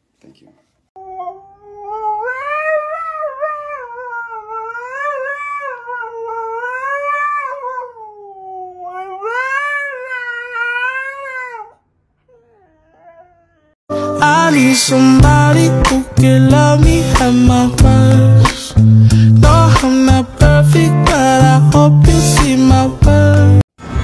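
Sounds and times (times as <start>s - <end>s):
dog howling: 1.0s - 13.8s.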